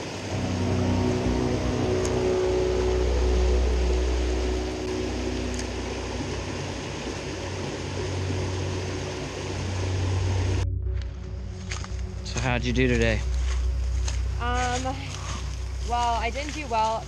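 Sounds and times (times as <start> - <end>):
water rushing over rocks: 0.0 - 10.6.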